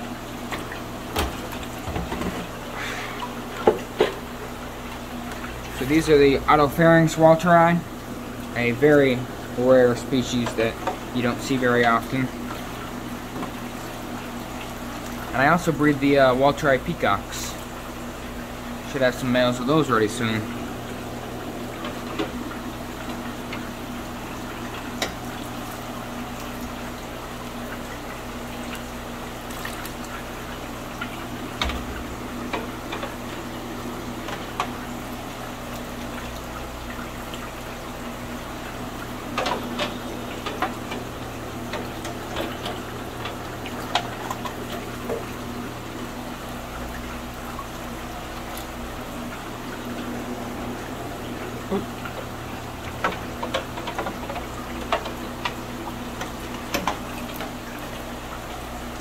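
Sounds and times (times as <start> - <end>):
steady low hum: 0.0 - 59.0
water splashing and sloshing: 0.0 - 59.0.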